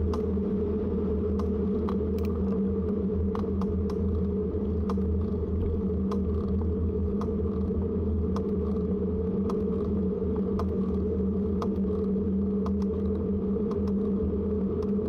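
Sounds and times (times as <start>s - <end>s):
light tick: 1.3s - 4.1s, 6.0s - 6.3s, 7.2s - 7.4s, 9.4s - 9.7s, 10.5s - 10.8s, 12.6s - 13.0s.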